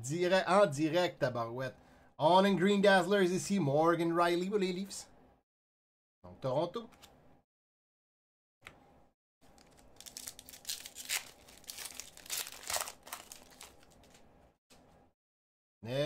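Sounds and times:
foil wrapper tearing and crinkling: 0:09.6 - 0:14.2.

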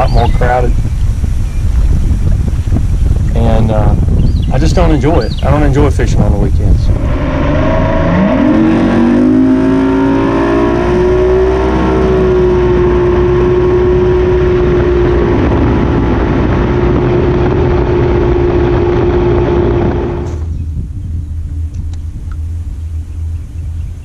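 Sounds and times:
rush of wind and water: 0:00.0 - 0:22.6
outboard motor running at speed: 0:08.4 - 0:24.0.

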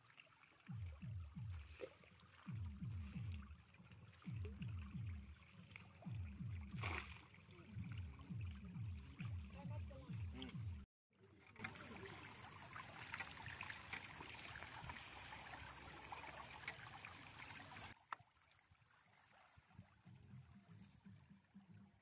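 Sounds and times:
water streaming off a net: 0:05.3 - 0:07.6, 0:11.4 - 0:19.8
fish flapping and splashing: 0:05.4 - 0:07.4.

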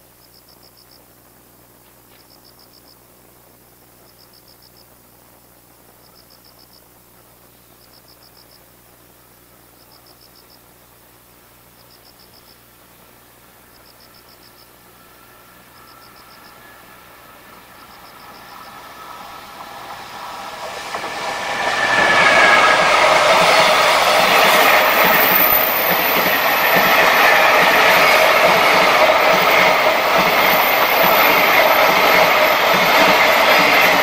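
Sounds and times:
electric locomotive approaching: 0:10.9 - 0:34.0
freight train wheels rumbling: 0:12.7 - 0:34.0
wheels clacking over rail joints: 0:17.6 - 0:34.0.

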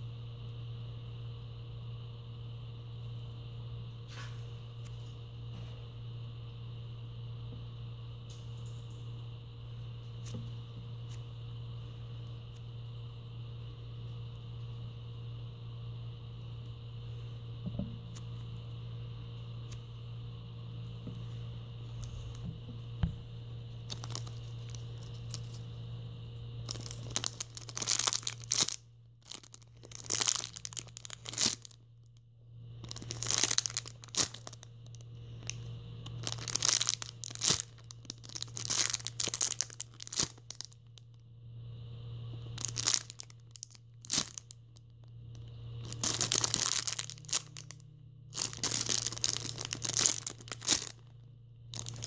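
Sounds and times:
plastic bag crinkling: 0:23.8 - 0:25.6, 0:26.6 - 0:31.8, 0:32.8 - 0:41.1, 0:42.5 - 0:45.1, 0:45.8 - 0:51.1, 0:51.7 - 0:52.0.

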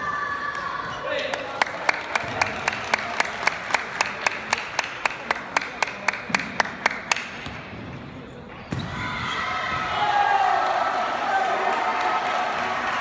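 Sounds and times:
crowd cheering: 0:00.0 - 0:06.8, 0:08.8 - 0:13.0
spectators clapping rhythmically: 0:01.3 - 0:07.4, 0:10.6 - 0:13.0.

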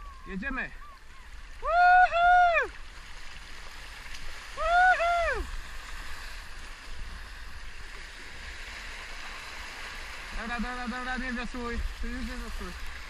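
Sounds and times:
water rushing along a canoe hull: 0:00.0 - 0:13.0
person shouting: 0:01.6 - 0:02.7, 0:04.6 - 0:05.5.

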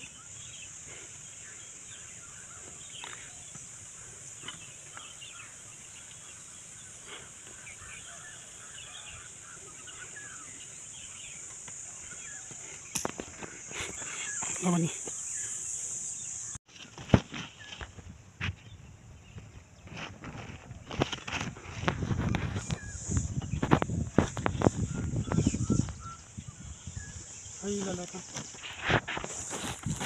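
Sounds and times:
steady high hiss: 0:00.0 - 0:16.6
faint bird chirps: 0:22.0 - 0:28.2.

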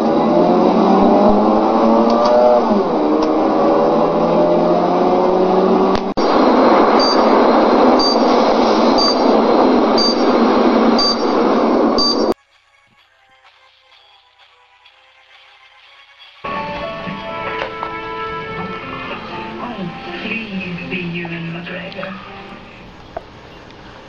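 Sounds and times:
car engine accelerating: 0:00.0 - 0:12.2
rocket launch roar: 0:05.4 - 0:12.4
short high electronic beep: 0:07.0 - 0:07.3, 0:11.0 - 0:11.4, 0:12.0 - 0:12.4.

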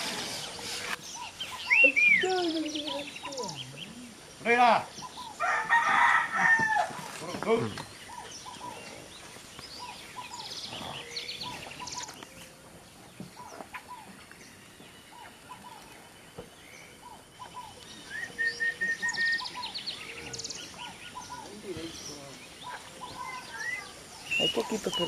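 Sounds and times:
birds chirping: 0:00.0 - 0:25.0
whistled bird notes: 0:17.0 - 0:25.0.

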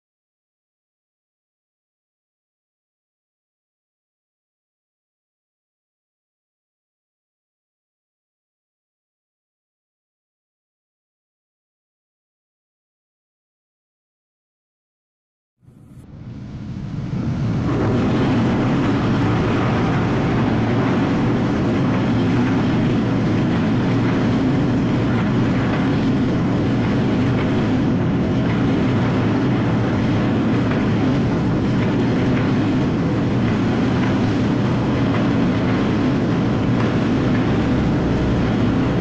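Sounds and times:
train wheels rumbling on rails: 0:15.8 - 0:39.0.

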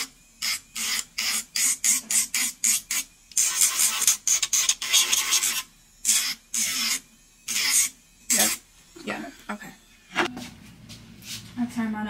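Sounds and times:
electric nail drill grinding: 0:00.0 - 0:10.3.

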